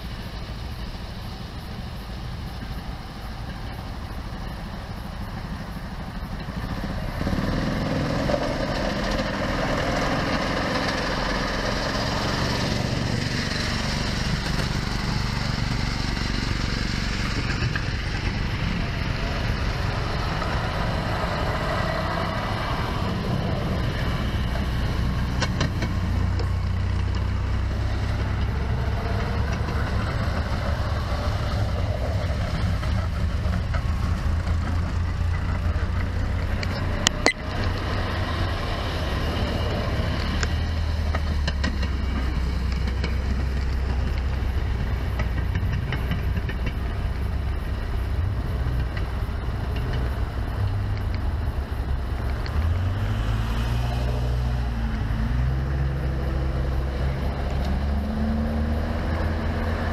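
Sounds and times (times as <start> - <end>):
small gasoline engines running: 0.0 - 59.9.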